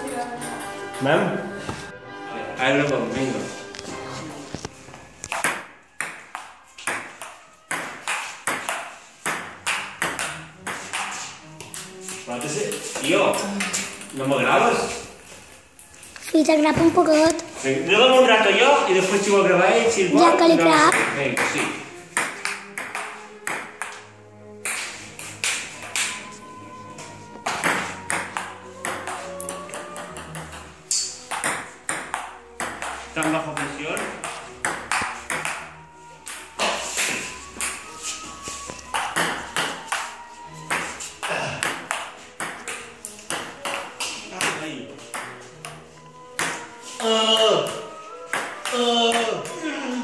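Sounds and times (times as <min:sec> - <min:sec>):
background music: 0:00.0 - 0:50.0
ping-pong ball clicking: 0:27.5 - 0:36.5.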